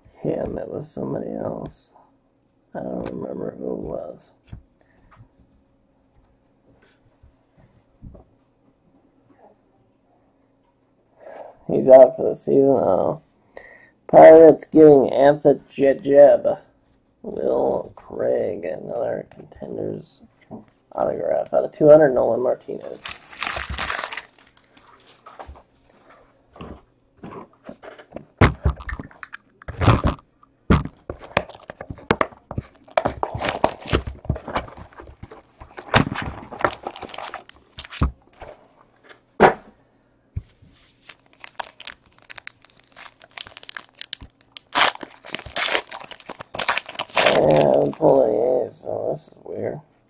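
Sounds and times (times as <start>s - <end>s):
plastic wrap crinkling and tearing: 22.8s - 24.8s, 31.1s - 38.5s, 40.8s - 48.2s.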